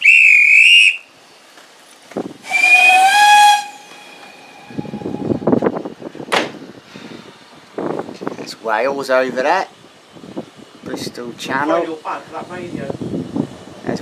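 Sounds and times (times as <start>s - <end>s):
steam locomotive whistle blast: 0.0s - 1.1s, 2.4s - 5.4s
rush of steam: 0.0s - 14.0s.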